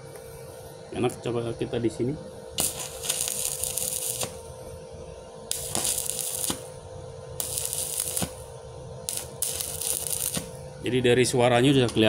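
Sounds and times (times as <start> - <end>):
welding arc crackling: 2.6 - 4.5, 5.5 - 10.6.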